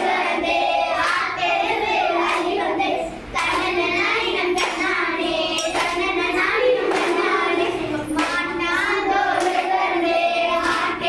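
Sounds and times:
girls singing together: 0:00.0 - 0:11.0
sharp hand claps in time: 0:05.6 - 0:06.0.

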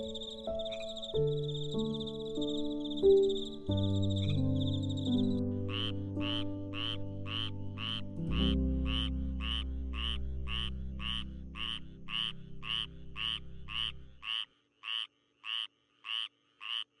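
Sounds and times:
frog croaking: 0:00.0 - 0:17.0
low steady drone: 0:05.4 - 0:14.2.

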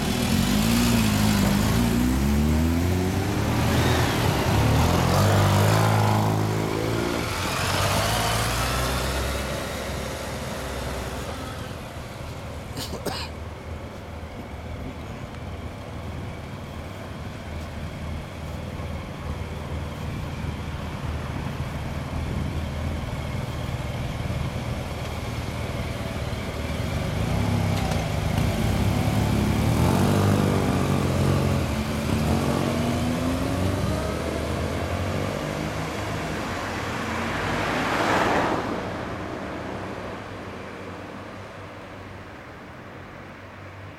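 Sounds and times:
motorcycle engines revving: 0:00.0 - 0:12.7, 0:18.0 - 0:38.7
car traffic: 0:00.0 - 0:43.9.

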